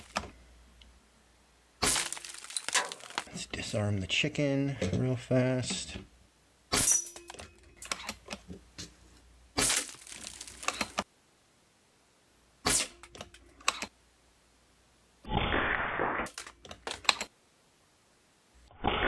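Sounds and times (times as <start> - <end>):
pellets hitting targets: 1.8 - 3.3, 9.6 - 11.0.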